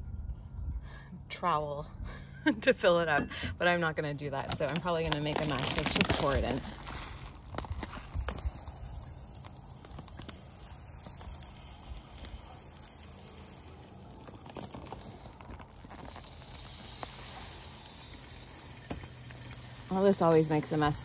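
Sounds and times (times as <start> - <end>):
bird seed pouring: 4.6 - 21.0
seeds ticking on feeder: 4.7 - 21.0.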